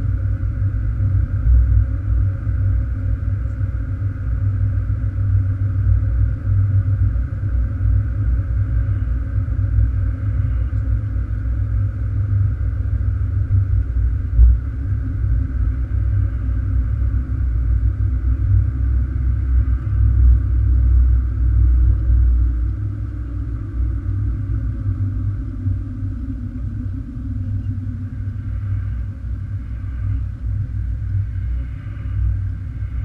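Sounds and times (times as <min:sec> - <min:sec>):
car cabin road rumble: 0:13.2 - 0:16.8.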